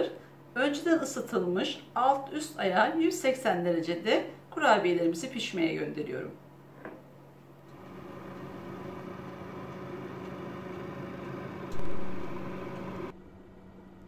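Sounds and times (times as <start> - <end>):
electric oven humming: 7.2 - 14.0.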